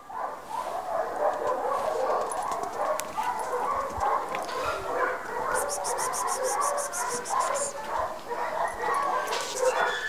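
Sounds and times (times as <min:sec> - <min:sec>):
dog whining and yipping: 0:08.5 - 0:10.0.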